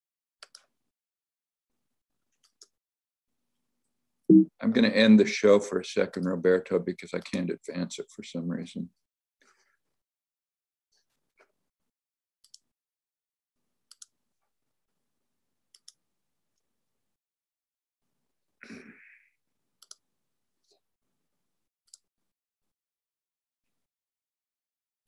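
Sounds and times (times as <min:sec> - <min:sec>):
computer mouse clicking: 0:00.4 - 0:00.7, 0:02.4 - 0:02.8, 0:12.4 - 0:12.7, 0:13.9 - 0:14.2, 0:15.7 - 0:16.0, 0:19.8 - 0:20.0.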